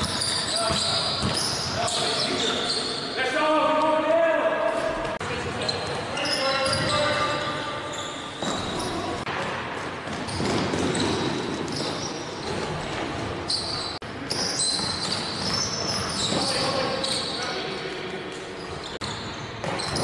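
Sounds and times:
basketball dribbling: 0.0s - 1.7s
sneakers squeaking: 0.0s - 3.2s, 4.7s - 20.0s.

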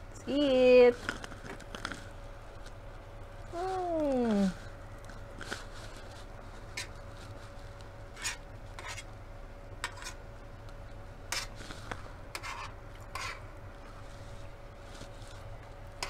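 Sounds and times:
metal fork scraping metal tray: 9.8s - 10.2s, 12.3s - 13.4s.

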